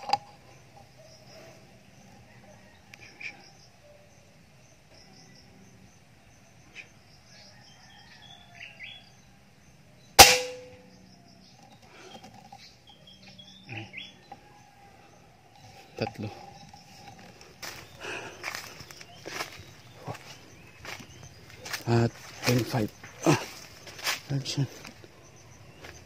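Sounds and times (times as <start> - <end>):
small birds chirping: 0.0 - 26.0
air rifle shot: 10.2 - 10.8.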